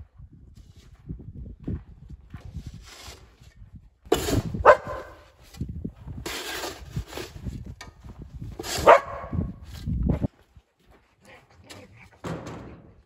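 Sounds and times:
snow shovel scraping ice: 4.1 - 5.6, 6.2 - 7.5, 8.6 - 9.0
dog barking loudly: 4.6 - 5.2, 8.8 - 9.5.

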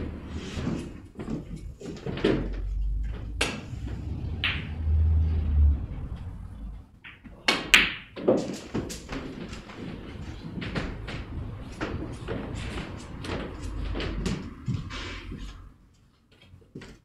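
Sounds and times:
snooker balls colliding: 0.0 - 15.5
cue tip striking ball: 3.4 - 5.2.

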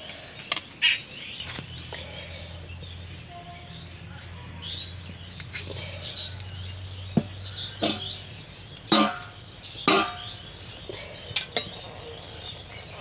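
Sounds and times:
metal kitchen utensils clanking: 7.8 - 8.2, 8.9 - 10.4, 11.3 - 11.8.

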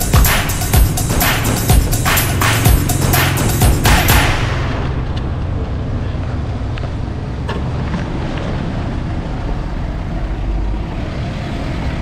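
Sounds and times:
steady low rumble: 0.0 - 8.2
street traffic: 0.0 - 12.0.

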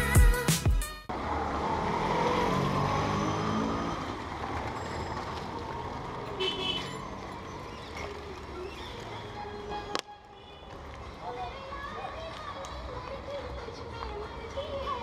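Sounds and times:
vehicle engine passing close: 1.1 - 9.4
street traffic: 1.1 - 15.0.

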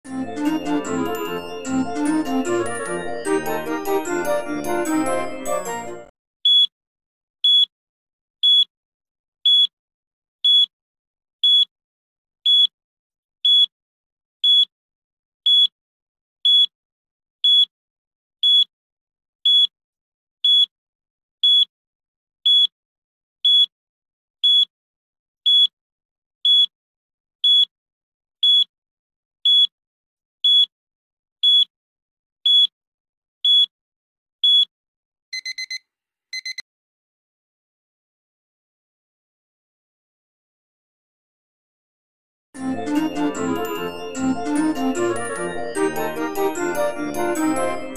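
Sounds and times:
short high electronic beeps: 35.4 - 35.8, 36.4 - 36.6.

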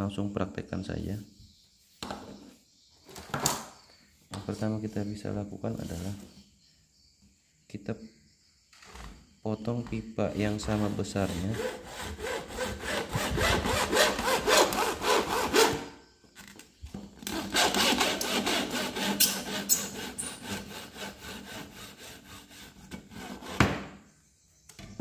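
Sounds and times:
hacksaw cutting plastic pipe: 10.4 - 16.0, 17.2 - 23.9.

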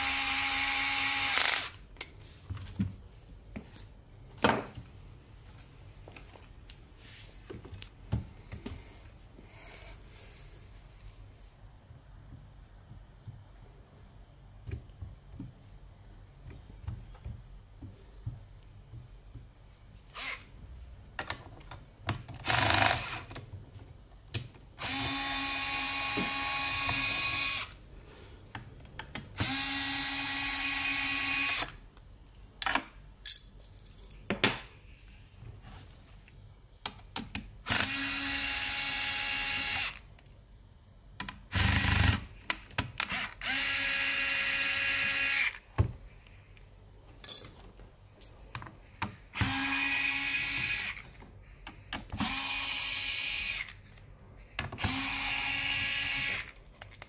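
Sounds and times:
electric screwdriver whirring: 0.0 - 1.8, 24.8 - 27.8, 29.4 - 31.7, 37.7 - 40.0, 43.0 - 45.6, 49.4 - 51.0, 52.2 - 53.8, 54.8 - 56.6
metal parts clicking and knocking: 32.6 - 34.8, 47.2 - 47.8.

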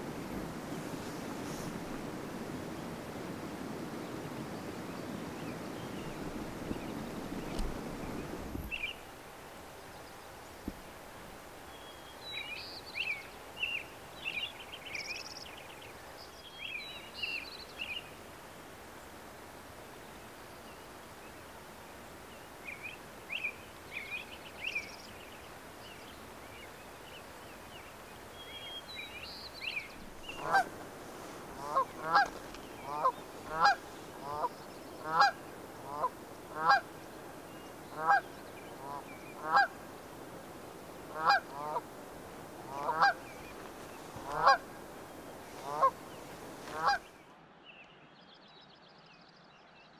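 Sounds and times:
songbird singing: 0.0 - 9.1, 9.7 - 18.2, 19.0 - 49.9
geese honking: 30.3 - 30.8, 31.5 - 36.9, 37.9 - 39.8, 41.1 - 41.9, 42.6 - 43.4, 44.1 - 44.8, 45.5 - 47.0.

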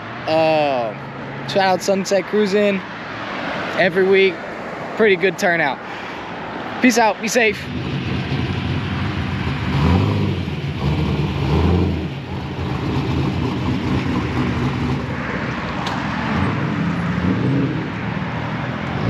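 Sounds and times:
car engine revving: 7.6 - 19.0.

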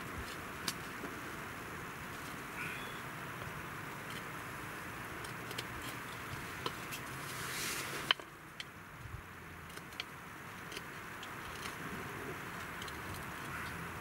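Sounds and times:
knife carving wooden stick: 9.6 - 13.9.

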